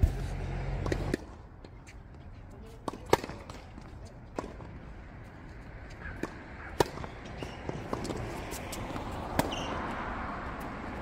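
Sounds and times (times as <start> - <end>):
racket striking ball: 0.0 - 1.4, 2.8 - 4.8, 6.0 - 9.8.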